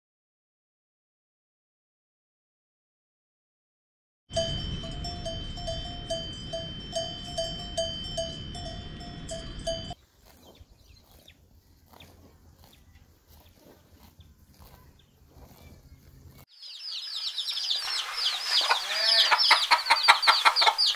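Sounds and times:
livestock bells clanking: 0:04.3 - 0:10.0
steady high tone: 0:04.3 - 0:10.0
cow cropping grass: 0:09.3 - 0:20.9.

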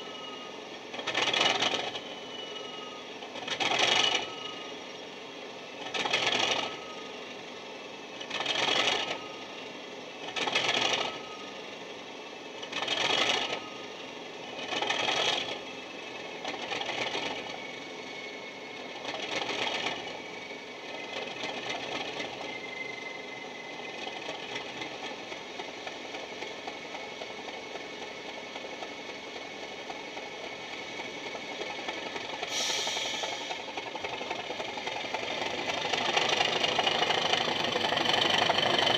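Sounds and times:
diesel engine running: 0:00.0 - 0:38.9
diesel engine starting bursts: 0:30.9 - 0:38.9.

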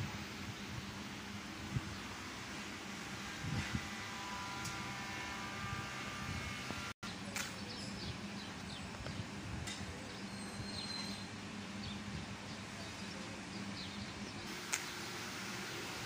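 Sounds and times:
sharp click: 0:14.7 - 0:14.9.

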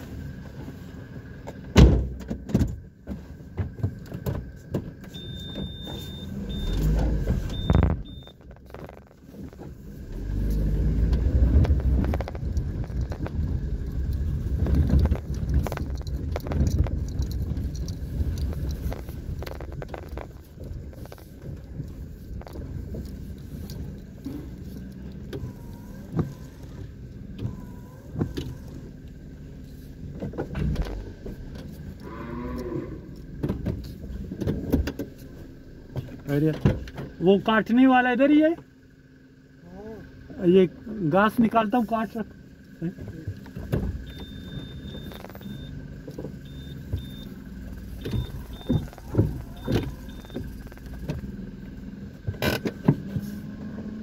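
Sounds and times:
car rumbling over dirt track: 0:00.0 - 0:54.0
short high beeps: 0:05.2 - 0:06.9, 0:07.5 - 0:08.4, 0:44.1 - 0:45.8, 0:46.4 - 0:47.4, 0:48.0 - 0:50.9.

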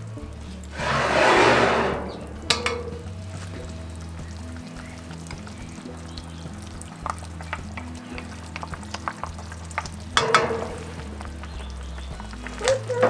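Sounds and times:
sauce bubbling and sizzling: 0:00.0 - 0:13.0
wooden spoon scraping jar: 0:00.7 - 0:03.1.

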